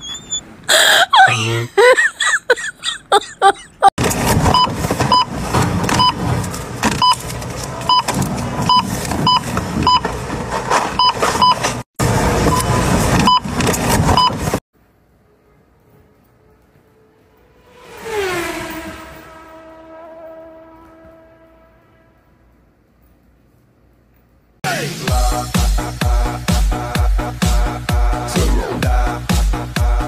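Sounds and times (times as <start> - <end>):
short voice sounds: 0.7 - 1.8.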